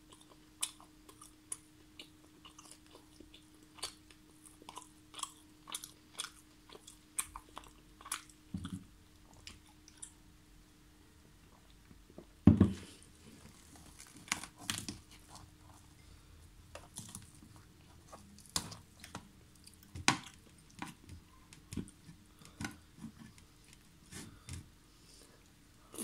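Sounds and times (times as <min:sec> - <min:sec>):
chewing: 0:00.0 - 0:10.2
thump: 0:12.5 - 0:12.8.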